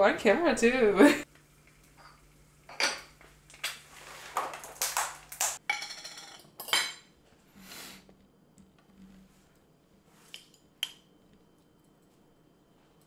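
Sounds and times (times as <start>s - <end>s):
dishes and utensils clinking: 1.8s - 3.8s, 5.6s - 7.1s.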